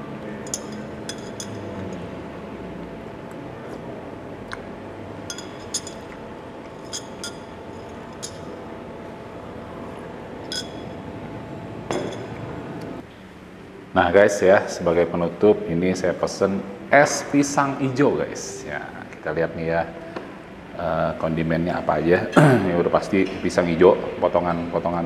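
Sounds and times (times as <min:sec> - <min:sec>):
steady room hum: 0:00.0 - 0:25.0
spoon clinking against glass: 0:00.4 - 0:02.0, 0:05.3 - 0:08.6, 0:10.4 - 0:11.0.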